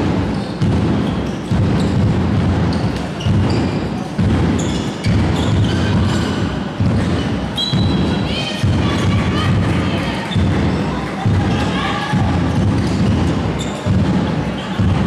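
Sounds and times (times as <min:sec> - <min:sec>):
large drum beating: 0:00.0 - 0:15.0
sports shoes squeaking on floor: 0:00.2 - 0:09.5, 0:10.2 - 0:15.0.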